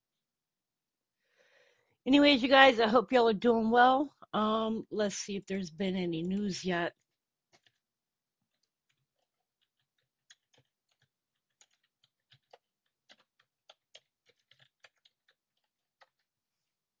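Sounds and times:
typing on computer keyboard: 6.9s - 7.8s, 8.5s - 16.4s.

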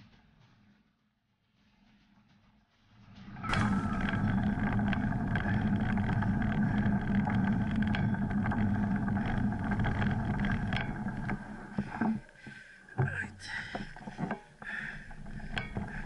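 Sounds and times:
bike rolling over gravel: 3.5s - 16.0s.

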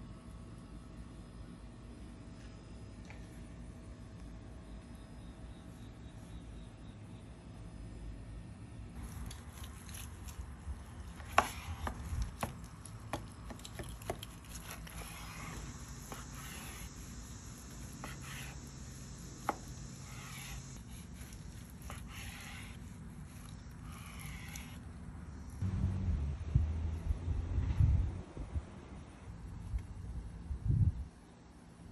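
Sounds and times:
knife slicing meat: 19.4s - 24.8s.

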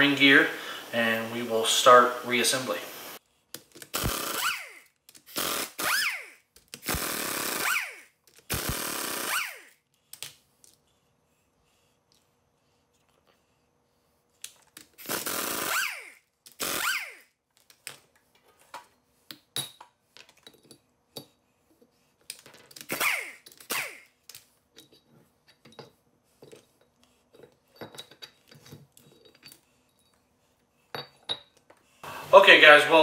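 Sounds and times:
pneumatic impact wrench: 3.8s - 9.8s, 15.0s - 17.3s, 22.8s - 24.1s
bolts and tools clinking on concrete: 18.7s - 21.3s, 22.2s - 30.2s, 30.9s - 31.7s.

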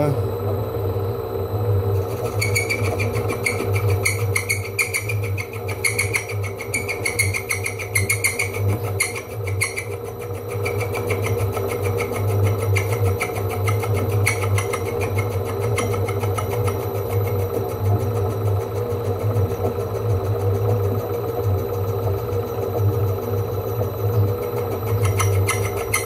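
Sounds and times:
metal lathe running: 0.7s - 26.0s
cutting tool squealing: 1.9s - 19.4s, 24.0s - 26.0s.

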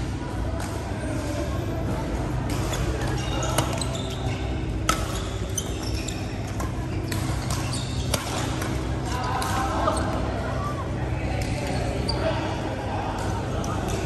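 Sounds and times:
steady background hum: 0.0s - 14.0s
shoes squeaking on court floor: 2.6s - 9.0s
rackets striking shuttlecock: 4.8s - 5.4s.

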